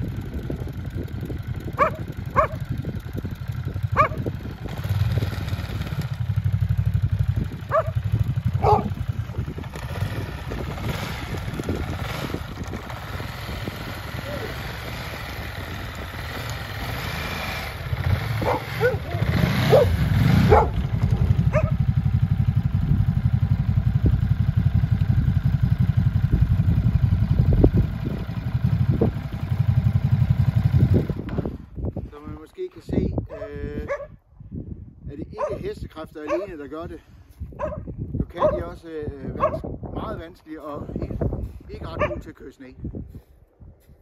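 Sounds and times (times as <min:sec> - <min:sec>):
motorcycle engine running: 0:00.0 - 0:32.1, 0:37.4 - 0:40.0, 0:40.7 - 0:42.2
dog barking: 0:01.8 - 0:02.6, 0:04.0 - 0:04.2, 0:07.7 - 0:08.0, 0:08.6 - 0:09.0, 0:18.4 - 0:20.8, 0:21.5 - 0:21.8, 0:33.3 - 0:34.2, 0:35.4 - 0:36.6, 0:37.6 - 0:38.7, 0:39.4 - 0:39.7, 0:42.0 - 0:42.3.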